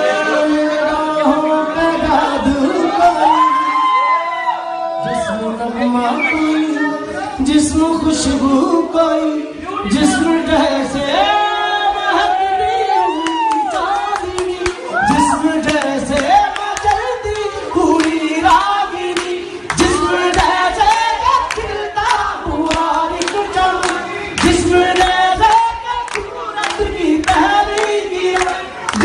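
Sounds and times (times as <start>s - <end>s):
man singing into a microphone: 0.0s - 3.8s, 4.9s - 29.0s
crowd singing along: 0.0s - 4.3s, 5.0s - 29.0s.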